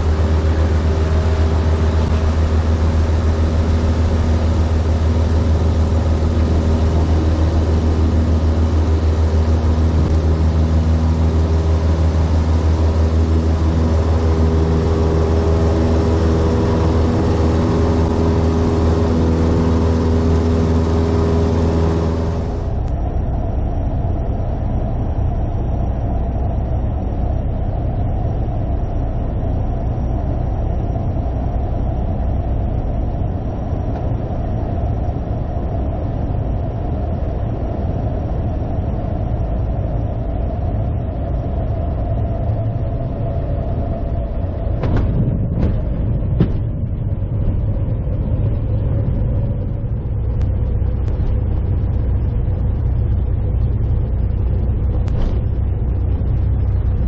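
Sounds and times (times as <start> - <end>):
propeller plane engine drone: 0.0 - 57.0.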